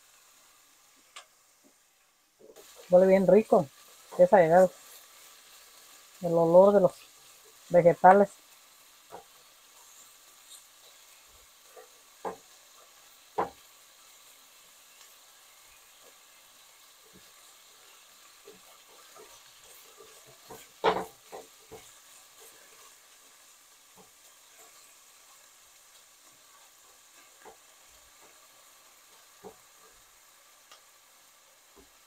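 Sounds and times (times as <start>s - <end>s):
vegetables sizzling in pan: 0.0s - 32.0s
spatula scraping and knocking pan: 11.6s - 13.7s, 17.0s - 24.9s, 26.5s - 30.0s.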